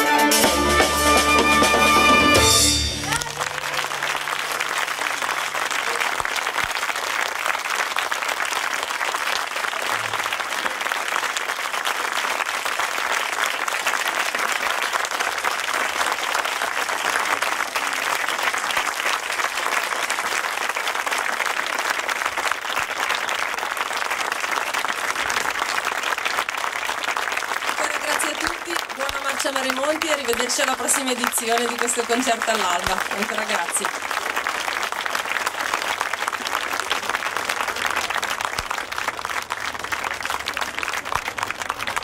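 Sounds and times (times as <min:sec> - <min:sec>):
audience applauding: 0:00.7 - 0:42.0.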